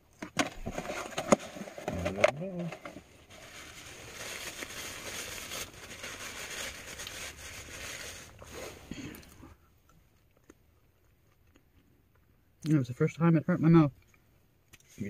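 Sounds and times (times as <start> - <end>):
paper wrapper crinkling: 0.4 - 9.3.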